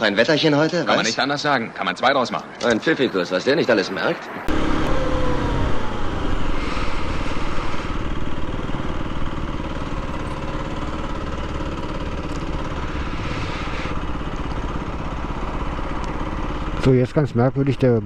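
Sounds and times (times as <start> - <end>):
motorcycle engine idling: 4.6 - 18.0.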